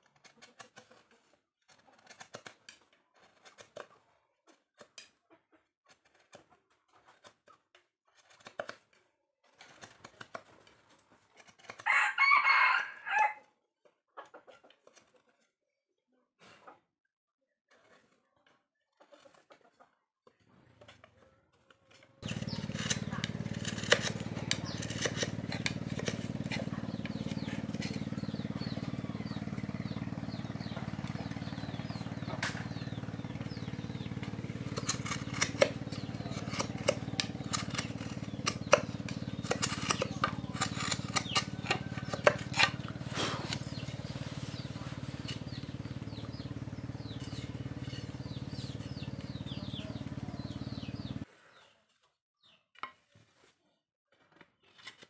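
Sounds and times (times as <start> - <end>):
low machine hum: 22.2 - 51.2.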